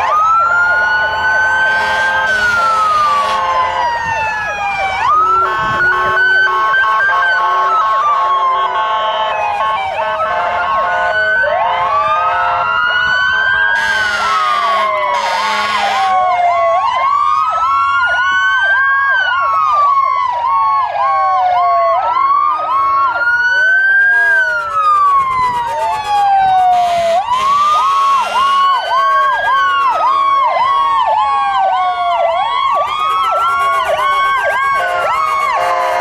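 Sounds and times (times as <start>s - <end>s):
fire truck sirens wailing: 0.0s - 36.0s
horn blasts: 0.7s - 3.8s, 5.2s - 12.7s, 13.6s - 16.1s, 24.0s - 30.0s, 33.0s - 36.0s.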